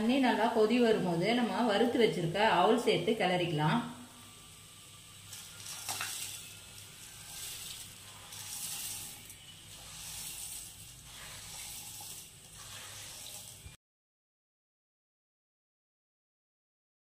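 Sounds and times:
boiling water hissing and bubbling: 3.5s - 13.8s.

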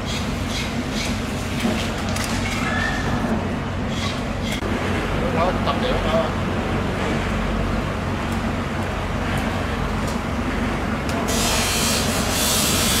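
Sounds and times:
low mechanical rumble: 0.0s - 13.0s
loud hiss: 11.3s - 13.0s.

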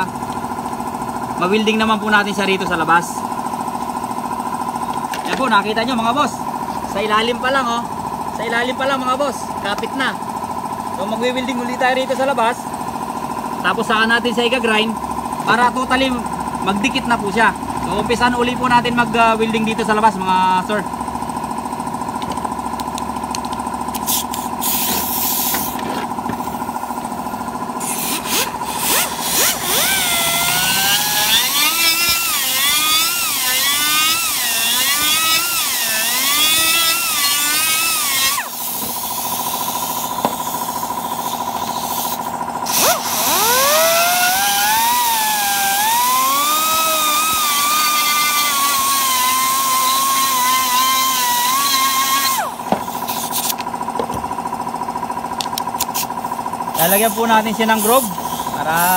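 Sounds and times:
small electric power tool: 22.2s - 54.2s, 55.5s - 58.9s.

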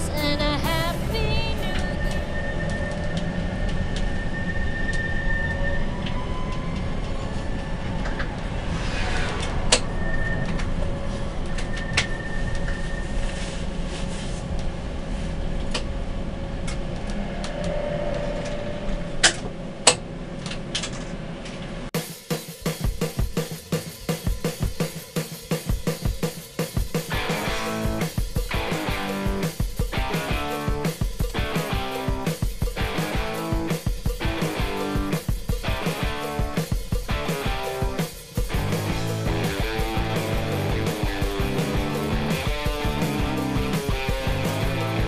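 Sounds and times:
tram rumbling on rails: 0.0s - 21.8s, 27.1s - 45.0s
music with drum beat: 22.0s - 45.0s
thin drive whine: 26.9s - 45.0s.

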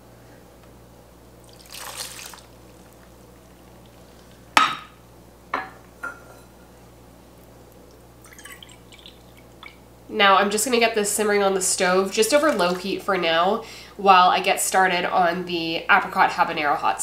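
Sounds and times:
liquid pouring into a pot: 1.4s - 3.9s, 8.2s - 9.8s, 12.1s - 13.0s.

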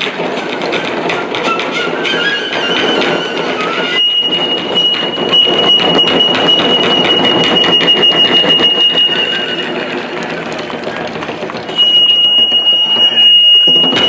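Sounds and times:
rapid taiko drumming: 0.0s - 14.0s
high steady tone: 3.3s - 10.3s, 11.7s - 14.0s.

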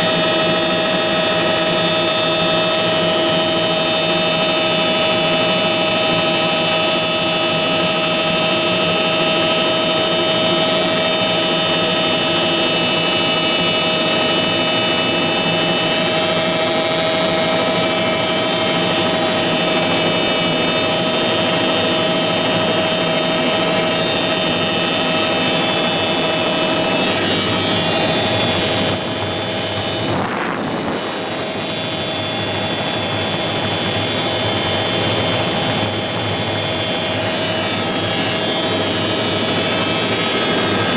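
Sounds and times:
helicopter engine whine: 0.0s - 40.9s
rotors drone: 14.3s - 40.9s.

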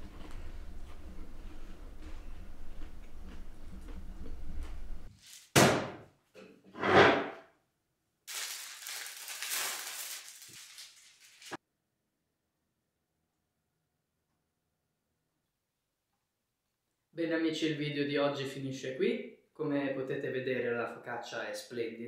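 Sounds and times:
paper wrapping rustling: 8.3s - 11.6s.

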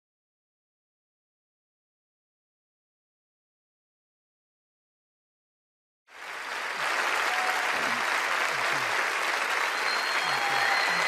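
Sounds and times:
crowd applauding: 6.1s - 11.0s.

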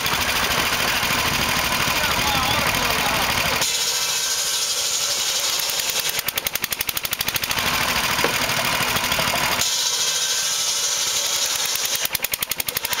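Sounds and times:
circular saw cutting log: 0.0s - 13.0s
stationary engine clatter: 0.0s - 13.0s.

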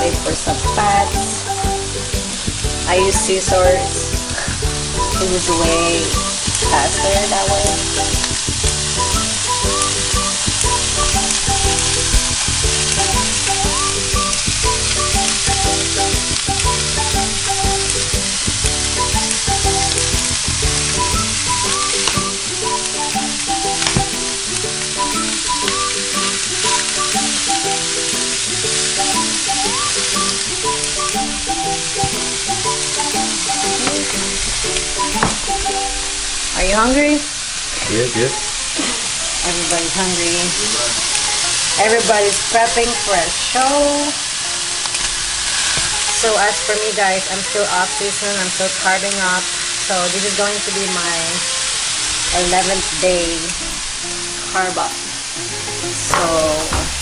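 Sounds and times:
meat sizzling in a frying pan: 38.4s - 46.6s, 47.9s - 57.0s.

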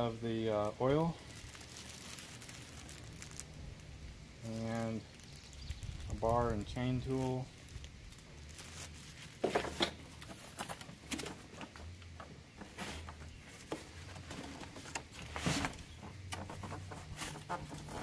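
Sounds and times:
cardboard box being handled: 12.6s - 18.0s.

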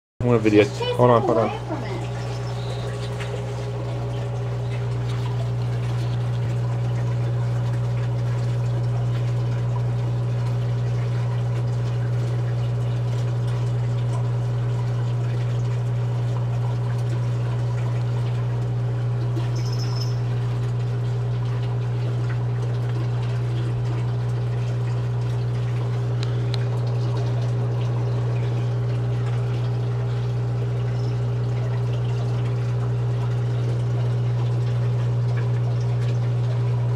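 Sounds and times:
aquarium pumps humming: 0.2s - 36.9s
faint water noise: 0.2s - 36.9s.

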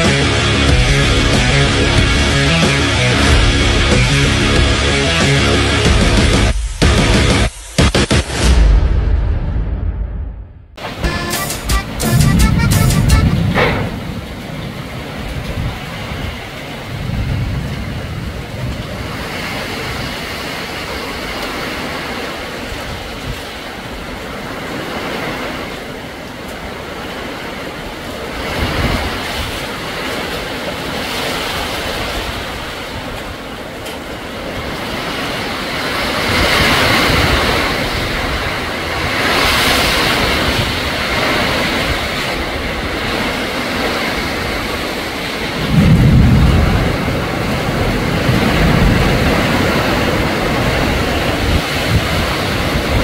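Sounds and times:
wind thrashing leafy trees: 10.8s - 53.0s
wind buffeting microphone: 12.2s - 53.0s.

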